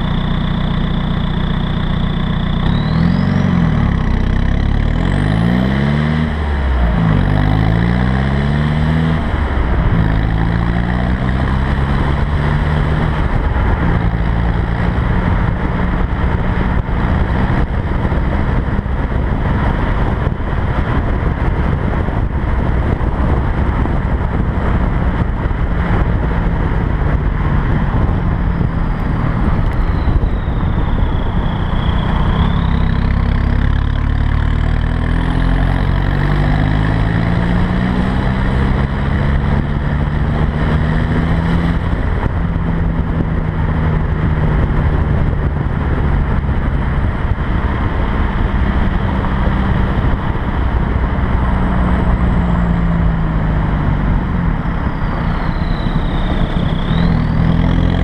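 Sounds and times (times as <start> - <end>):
high turbo whistle: 0.0 - 4.8, 28.2 - 34.3, 54.6 - 58.0
car exhaust revving: 0.0 - 58.0
road noise: 0.0 - 58.0.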